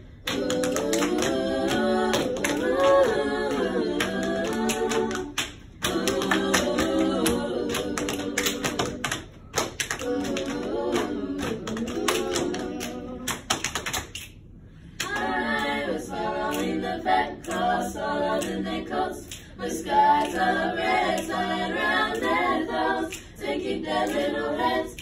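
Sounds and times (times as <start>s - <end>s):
women singing in harmony: 0.2s - 9.4s, 10.0s - 13.5s, 15.0s - 25.0s.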